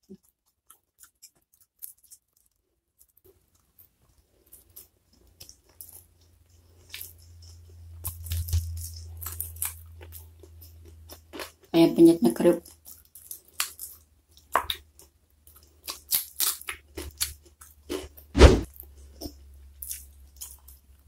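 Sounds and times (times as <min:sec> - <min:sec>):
chewing close to microphone: 0:00.0 - 0:11.7, 0:12.6 - 0:18.2, 0:18.8 - 0:21.0
fingers mixing sticky rice: 0:00.0 - 0:11.7.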